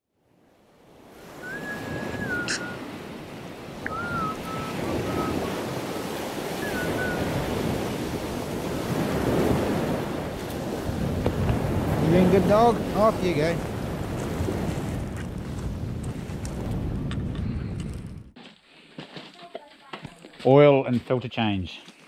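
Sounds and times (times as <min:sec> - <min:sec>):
surf washing onto beach: 0:00.8 - 0:17.0
short whistled tones: 0:01.3 - 0:02.8, 0:03.8 - 0:05.6, 0:06.5 - 0:07.3.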